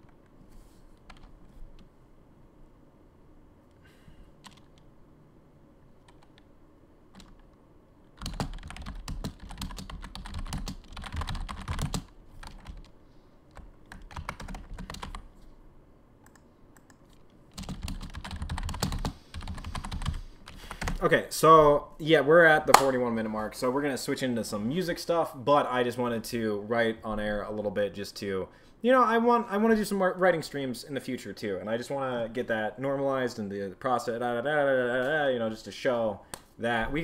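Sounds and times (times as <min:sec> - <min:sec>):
typing on a computer keyboard: 0:04.4 - 0:04.8, 0:06.0 - 0:06.4, 0:07.1 - 0:07.5, 0:08.2 - 0:12.9, 0:13.5 - 0:15.2, 0:16.2 - 0:21.0.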